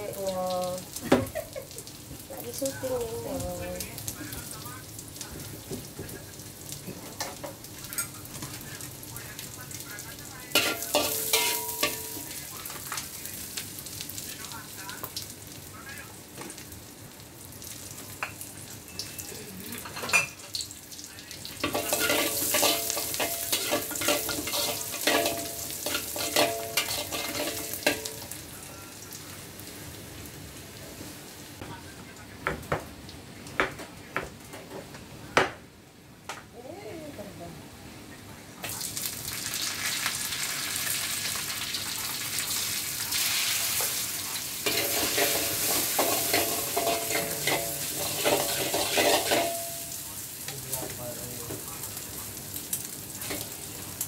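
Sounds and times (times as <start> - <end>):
food sizzling in oil in a wok: 0.0 - 31.6, 38.6 - 54.0
metal spatula scraping a wok: 10.6 - 12.2, 21.6 - 28.2, 44.6 - 49.8.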